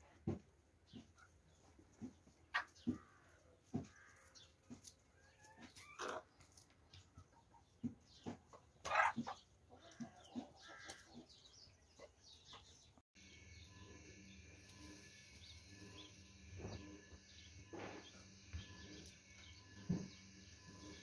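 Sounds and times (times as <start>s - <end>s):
steady low hum: 13.2s - 21.0s.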